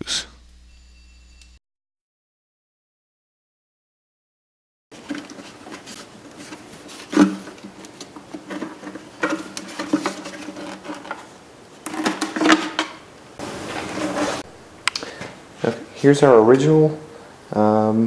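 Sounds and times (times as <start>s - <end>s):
faint steady hum: 5.0s - 18.0s
plastic parts clicking and knocking: 6.4s - 13.0s.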